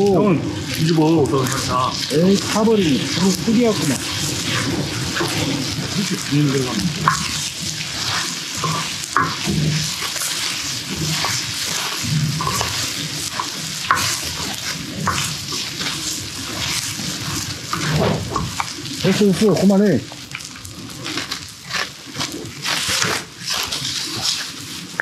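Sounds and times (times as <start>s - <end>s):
fried rice sizzling in a pan: 0.0s - 25.0s
utensil scraping and tapping pan: 2.0s - 19.2s.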